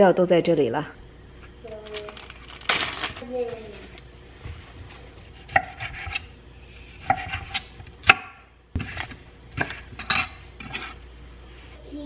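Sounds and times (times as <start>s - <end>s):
knife cutting on wooden board: 5.3s - 6.3s, 6.9s - 8.2s.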